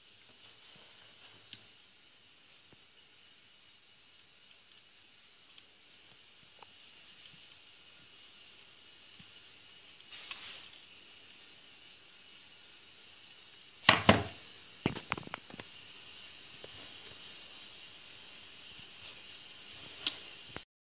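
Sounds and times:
steady hiss: 0.0s - 20.7s
camera handling knocks: 13.9s - 14.3s.

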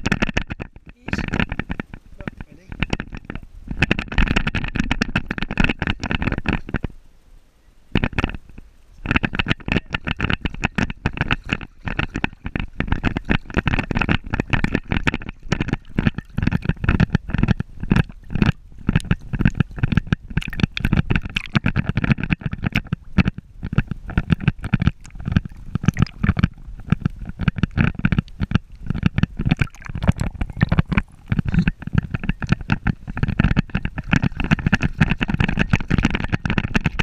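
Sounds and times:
water sloshing and splashing: 8.0s - 37.0s.

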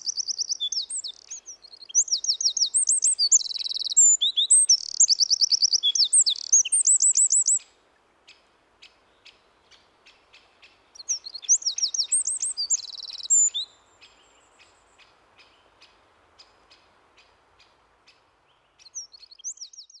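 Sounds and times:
wren singing high trills: 0.0s - 7.6s, 11.0s - 14.4s.

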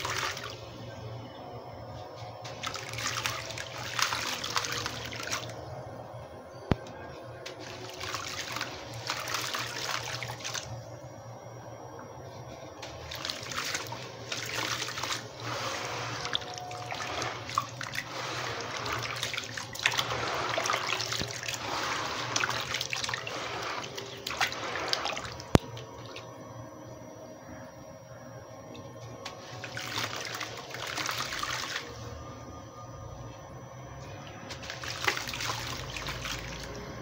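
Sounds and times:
hands squeezing wet cement: 2.4s - 5.6s, 7.6s - 10.7s, 12.9s - 26.2s, 29.4s - 31.9s, 34.5s - 36.8s
water trickling and splashing: 2.4s - 5.6s, 7.6s - 10.7s, 12.8s - 26.3s, 29.4s - 32.0s, 34.5s - 36.8s.

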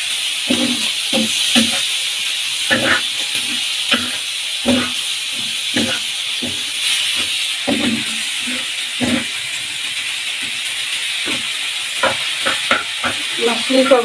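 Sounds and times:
food sizzling in oil: 0.0s - 14.0s
metal spatula scraping griddle: 0.5s - 2.0s, 2.6s - 9.4s, 11.2s - 14.0s.

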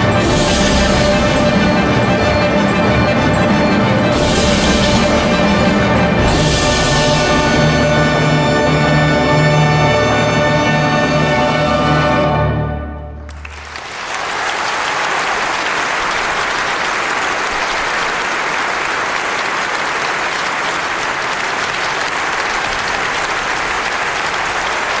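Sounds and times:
orchestra low rumble: 0.0s - 12.3s
audience applauding: 13.2s - 25.0s.

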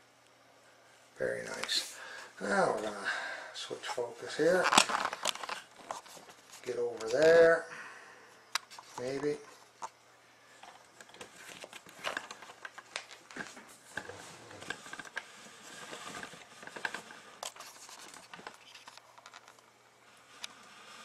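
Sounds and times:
handling clicks and rustles: 3.8s - 7.5s, 10.6s - 19.7s.

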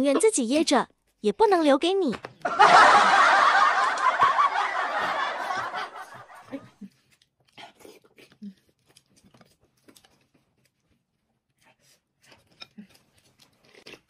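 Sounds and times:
snickering laughter: 2.5s - 6.8s
faint chewing: 6.4s - 14.0s.

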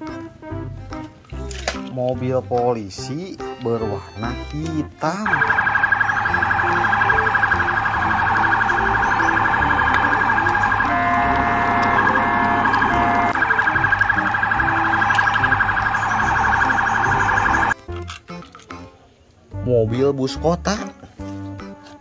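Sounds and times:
police siren wailing: 5.2s - 17.8s
siren steady beeping tones: 5.2s - 17.8s.

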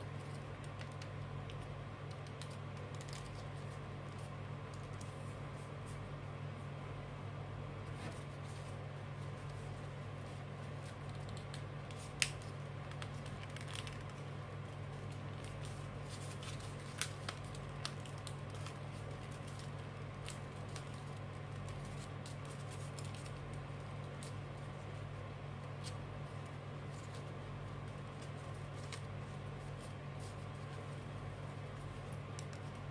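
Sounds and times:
steady low hum: 0.0s - 32.9s
paper rustling and creasing: 7.9s - 25.0s, 25.6s - 32.9s.

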